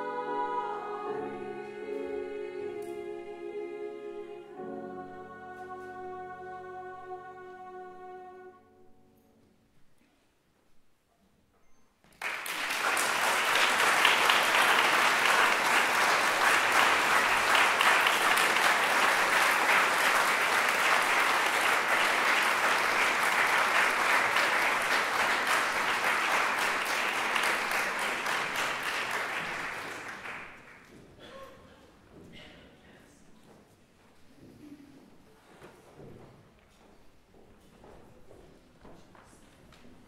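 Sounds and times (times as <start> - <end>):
audience applauding: 12.1 - 30.9.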